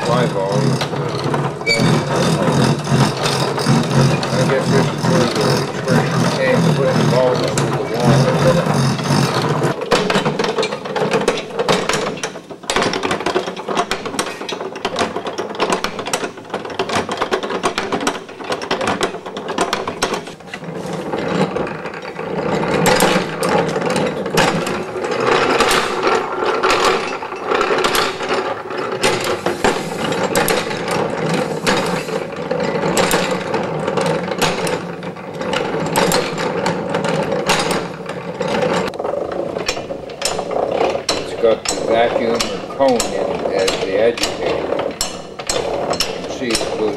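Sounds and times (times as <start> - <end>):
washing machine gears clattering: 0.0 - 46.9.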